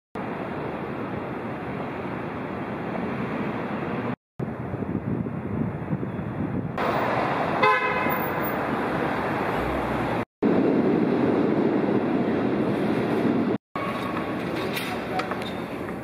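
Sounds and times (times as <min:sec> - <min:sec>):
city street traffic: 0:00.2 - 0:16.0
car horn toot: 0:07.6 - 0:08.2.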